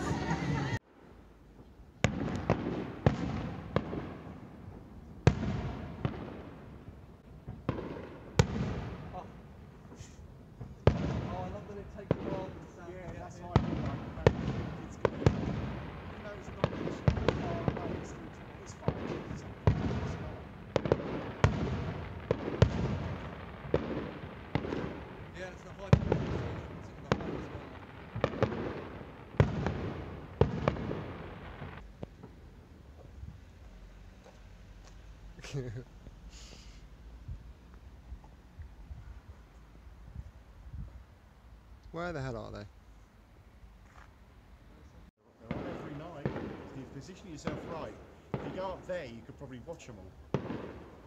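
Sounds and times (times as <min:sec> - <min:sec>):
distant firework shells bursting: 0:02.0 - 0:32.4, 0:45.4 - 0:51.0.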